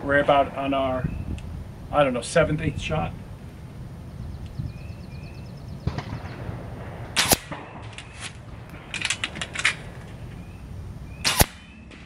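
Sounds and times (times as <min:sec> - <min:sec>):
air rifle shot: 0:05.8 - 0:09.9, 0:11.2 - 0:12.0
metallic clicks of rifle action: 0:07.2 - 0:10.2.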